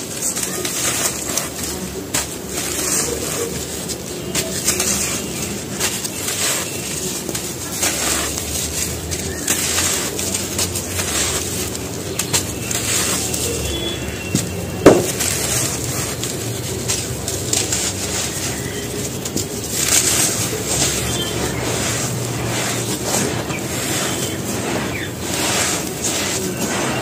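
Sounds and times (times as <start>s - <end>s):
hands crumbling dry cement: 0.0s - 27.0s.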